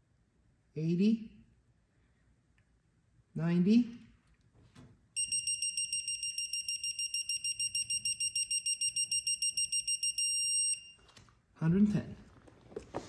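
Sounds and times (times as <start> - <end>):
rapid high electronic beeps: 5.2 - 10.9.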